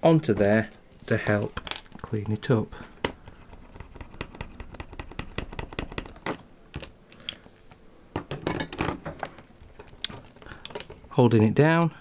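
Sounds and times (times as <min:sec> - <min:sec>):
small tools clicking on a desk: 0:09.8 - 0:11.1.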